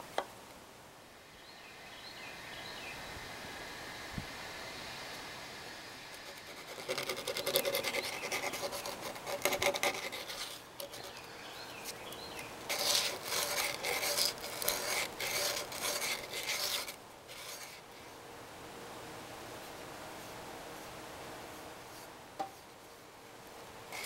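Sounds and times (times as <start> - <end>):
sandpaper rubbing wood: 6.1 - 11.3, 12.7 - 17.8.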